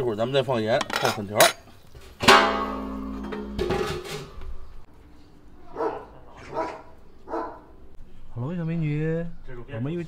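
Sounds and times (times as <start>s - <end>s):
dog barking: 5.7s - 7.8s.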